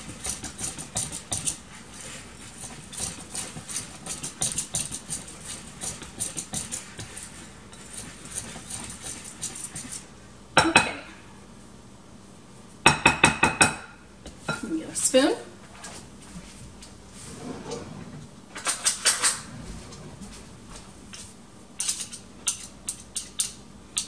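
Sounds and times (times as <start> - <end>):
whisk knocking on bowl: 0.0 - 10.0
whisk scraping in bowl: 0.0 - 10.1.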